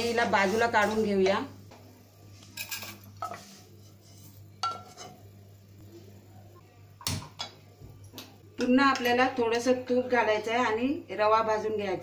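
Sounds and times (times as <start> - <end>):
utensil scraping a pan: 3.2 - 5.2.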